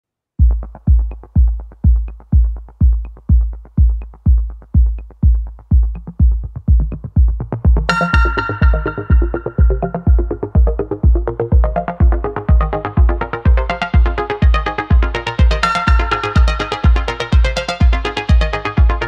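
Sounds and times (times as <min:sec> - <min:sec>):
kick-drum beat: 0:00.4 - 0:19.0
synthesizer melody: 0:06.8 - 0:19.0.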